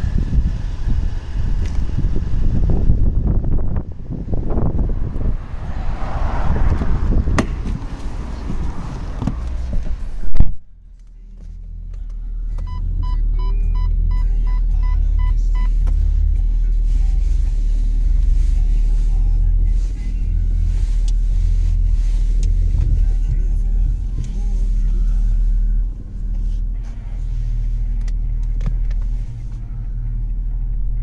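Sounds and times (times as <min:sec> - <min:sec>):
car engine idling: 0:00.0 - 0:31.0
street noise: 0:00.0 - 0:31.0
wind: 0:00.0 - 0:31.0
loud thump: 0:06.6 - 0:08.0
electronic parking beeps: 0:12.6 - 0:15.8.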